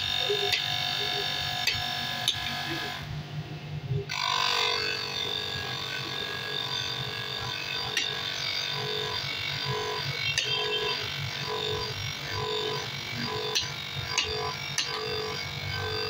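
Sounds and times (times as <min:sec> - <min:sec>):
grinding wheel on steel: 0:00.0 - 0:03.1, 0:04.1 - 0:16.0.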